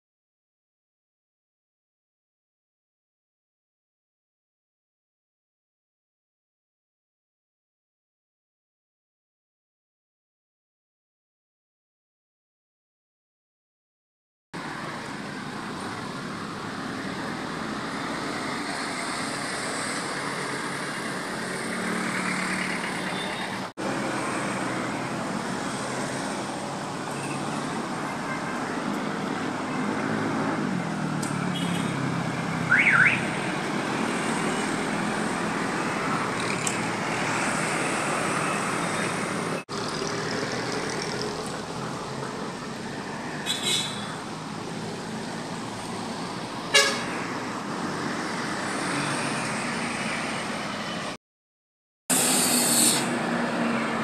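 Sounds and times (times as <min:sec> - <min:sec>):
road traffic passing: 0:14.6 - 0:51.2, 0:52.1 - 0:54.0.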